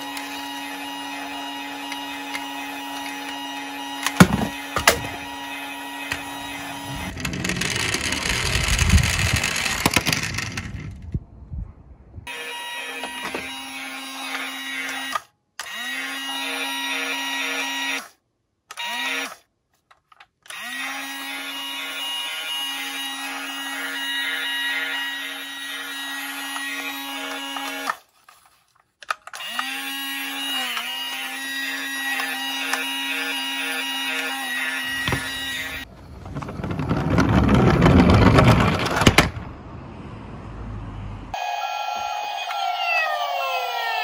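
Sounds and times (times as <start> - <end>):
toy siren buzzing electronic tone: 12.3 - 18.0, 18.7 - 19.4, 21.5 - 27.9, 41.4 - 44.0.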